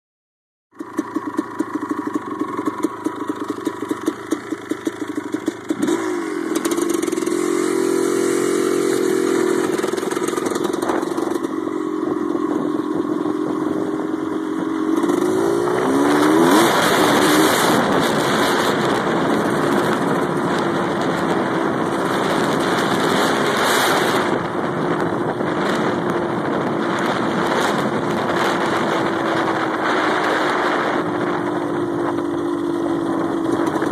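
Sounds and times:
dirt bike engine revving: 0.8s - 33.9s
wind noise: 8.7s - 33.9s.

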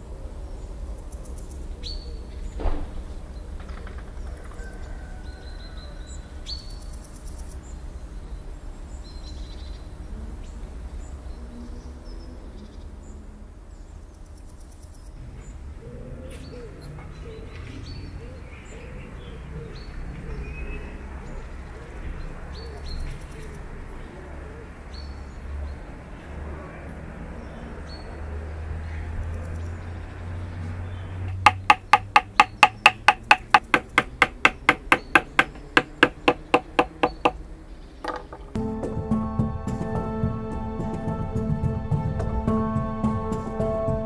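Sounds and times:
birds chirping: 13.9s - 38.6s
dove cooing: 15.8s - 24.8s
sharp knock: 31.3s - 37.4s.

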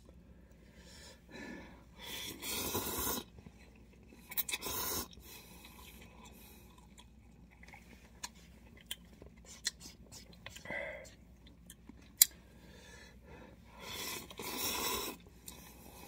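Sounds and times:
noodles slurped: 2.0s - 8.0s, 13.8s - 16.0s
chewing: 2.6s - 12.4s.

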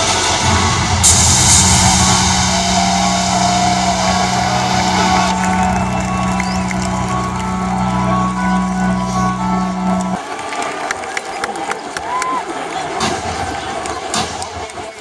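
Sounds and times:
loud rushing hiss: 0.0s - 6.8s
low droning tone: 0.0s - 10.2s
music over loudspeakers: 0.0s - 10.2s
crowd noise: 0.0s - 15.0s.

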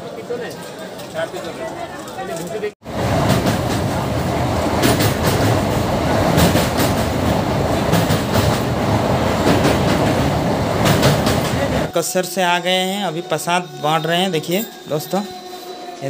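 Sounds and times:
train wheels rumbling on rails: 2.8s - 11.9s.

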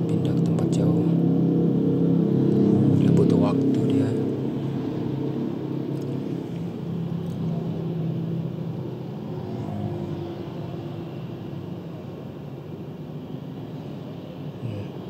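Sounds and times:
car engine and road noise: 0.0s - 15.0s.

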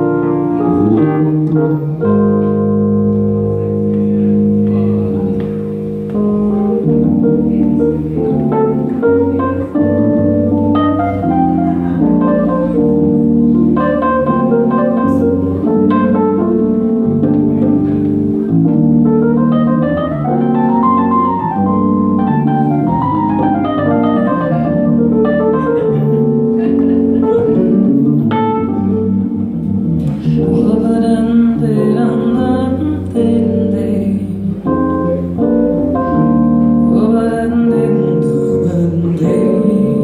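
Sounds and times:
electric bass line: 0.0s - 40.0s
electric keyboard chords: 0.0s - 40.0s
person singing: 30.2s - 35.3s, 36.8s - 40.0s.

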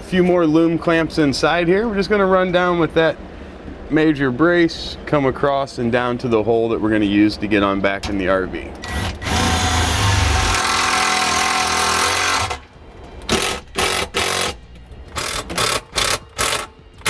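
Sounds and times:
cordless drill driving screws: 8.8s - 12.6s.

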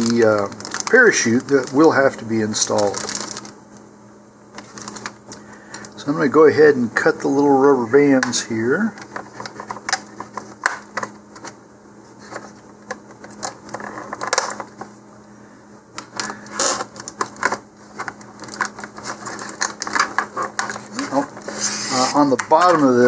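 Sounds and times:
plastic rustling: 0.0s - 3.6s, 4.5s - 6.0s, 16.1s - 23.0s.

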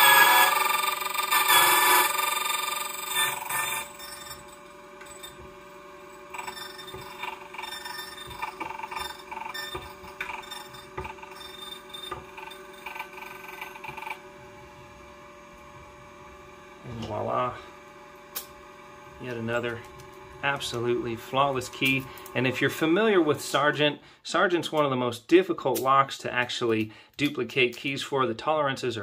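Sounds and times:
cutter grinding key blank: 0.0s - 14.2s
motor whining: 0.0s - 23.8s.

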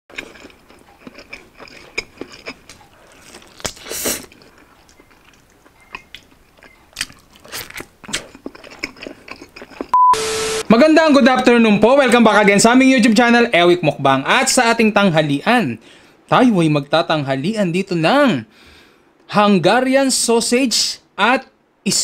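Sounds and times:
biting and chewing: 0.1s - 10.0s.

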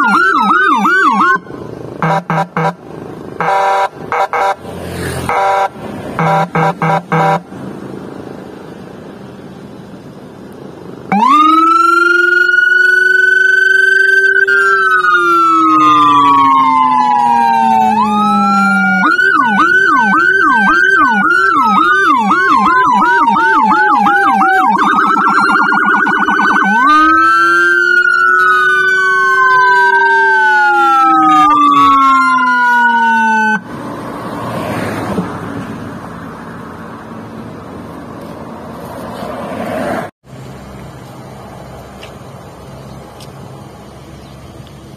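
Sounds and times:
two-tone electronic siren wail: 0.0s - 2.8s, 3.4s - 4.6s, 5.2s - 7.5s, 11.1s - 33.7s
short horn blasts: 2.0s - 2.8s, 3.4s - 4.6s, 5.2s - 7.5s.

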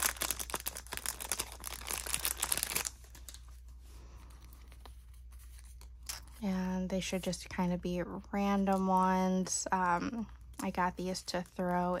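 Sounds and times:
plastic packet crinkling: 0.0s - 3.6s.

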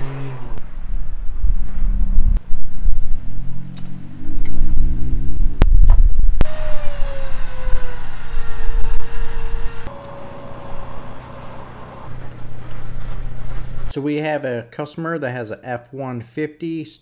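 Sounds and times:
vehicle engine rumble: 0.0s - 14.0s
electric winch whining: 6.4s - 13.9s.

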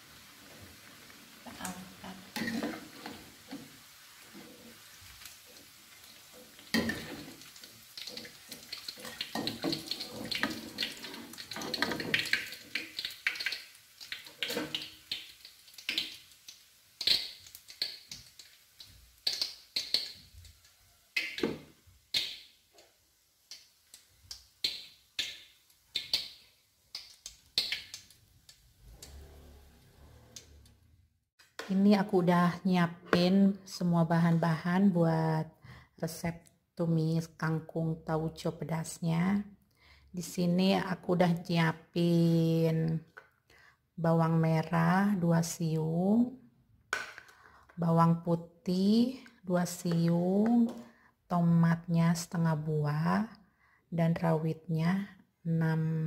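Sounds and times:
hot oil sizzling: 0.0s - 30.6s.

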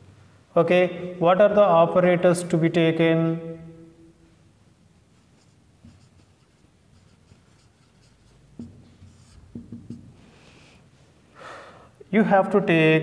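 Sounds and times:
marker scratching on whiteboard: 5.1s - 10.3s
marker tapping: 5.4s - 10.2s.

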